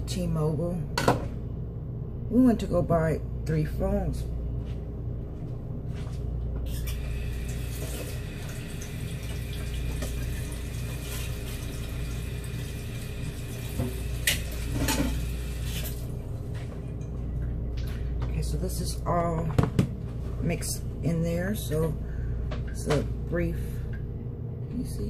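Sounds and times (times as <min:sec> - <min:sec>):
water splashing into sink: 0:06.8 - 0:16.0.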